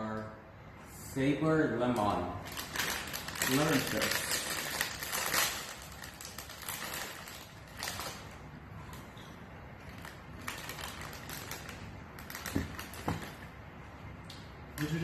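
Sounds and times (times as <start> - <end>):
foil chip bag crinkling: 1.9 - 8.4, 9.8 - 13.5.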